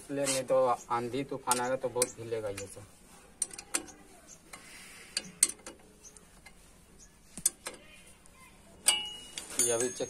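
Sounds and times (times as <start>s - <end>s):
allen key clicking on metal bolts: 3.4s - 6.6s, 8.8s - 10.0s.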